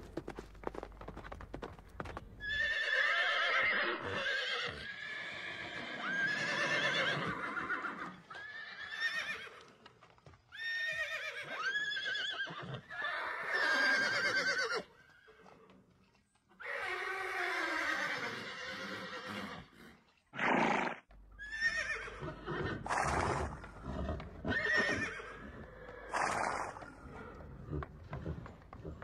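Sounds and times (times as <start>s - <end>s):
horses whinnying: 2.0s - 9.7s, 10.6s - 15.4s, 16.6s - 29.0s.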